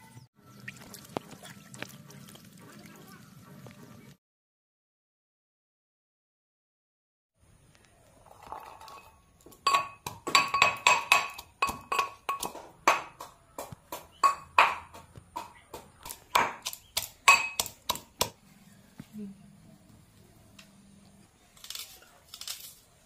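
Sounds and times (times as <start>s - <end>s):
pestle striking metal mortar: 9.6s - 18.4s.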